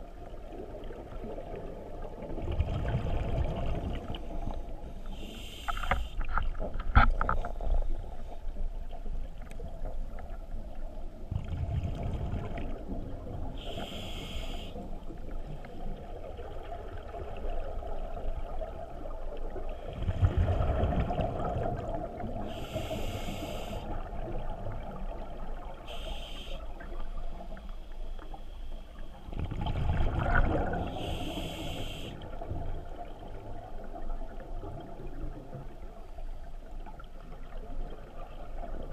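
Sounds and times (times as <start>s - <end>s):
exhaled bubbles rumbling underwater: 0.0s - 38.9s
regulator hissing inhalations: 5.1s - 6.2s, 13.6s - 14.8s, 22.5s - 23.9s, 25.9s - 26.7s, 30.9s - 32.2s.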